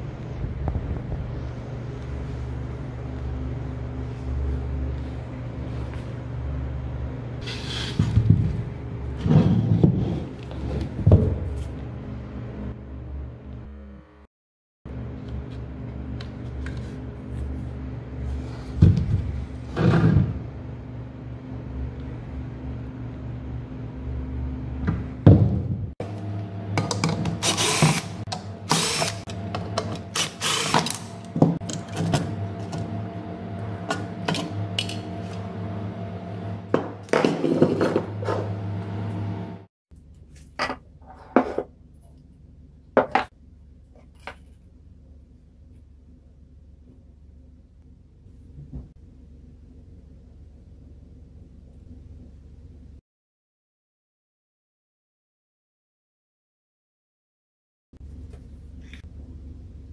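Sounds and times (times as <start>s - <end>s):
low hum: 0.0s - 14.3s, 14.9s - 41.0s, 58.0s - 59.9s.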